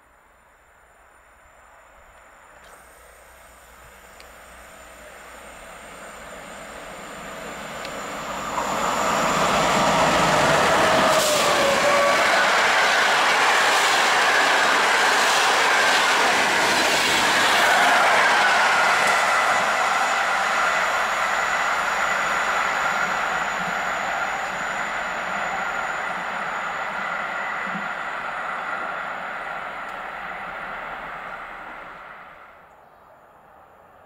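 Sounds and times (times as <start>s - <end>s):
electric locomotive whine: 0.0s - 34.0s
wheels rushing on rail: 0.1s - 34.0s
train coaches rumbling past: 0.9s - 34.0s
faint ringing tone: 19.8s - 33.7s.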